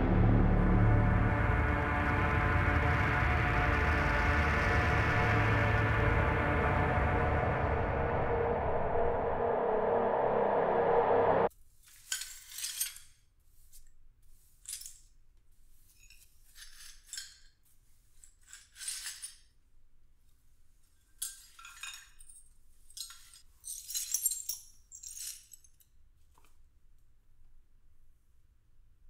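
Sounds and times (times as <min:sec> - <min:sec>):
low musical drone: 0:00.0 - 0:11.5
broom sweeping hard floor: 0:11.5 - 0:19.1.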